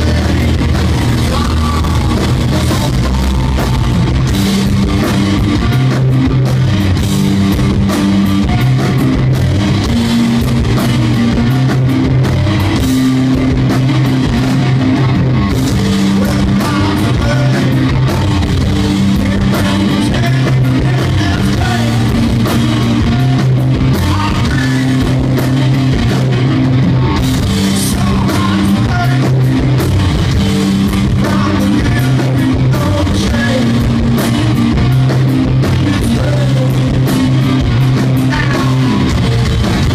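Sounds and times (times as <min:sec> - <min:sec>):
person singing: 0:00.0 - 0:03.8, 0:16.1 - 0:18.2
bass guitar riffing: 0:00.0 - 0:39.9
distorted electric guitar: 0:00.0 - 0:39.9
drum kit: 0:00.0 - 0:39.9.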